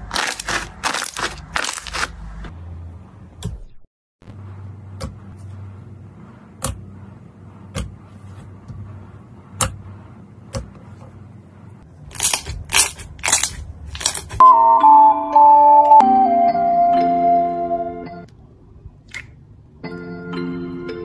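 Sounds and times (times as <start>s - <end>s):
slime squelching: 0.0s - 2.3s.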